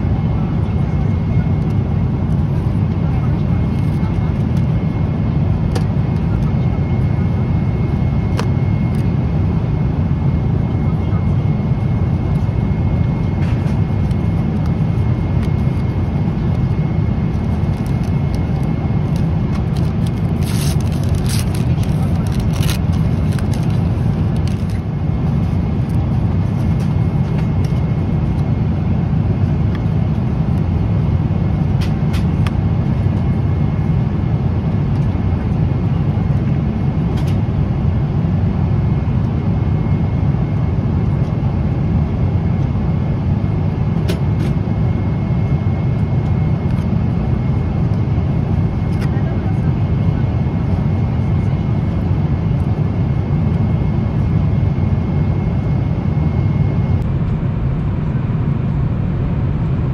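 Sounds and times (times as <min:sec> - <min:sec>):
airliner cabin rumble: 0:00.0 - 0:59.9.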